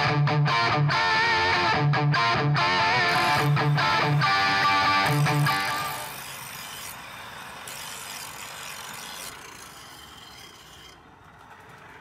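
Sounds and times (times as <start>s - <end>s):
knife grinding on grinding wheel: 3.0s - 12.0s.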